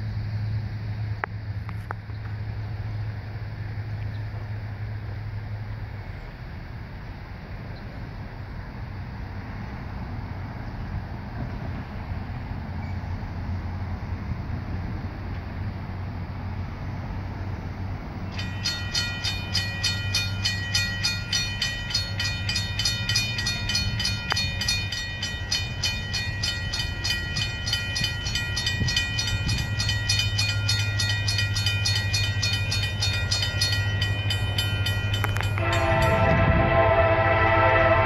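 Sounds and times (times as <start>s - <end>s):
railroad crossing bell ringing: 18.2s - 38.0s
locomotive horn: 35.2s - 38.0s.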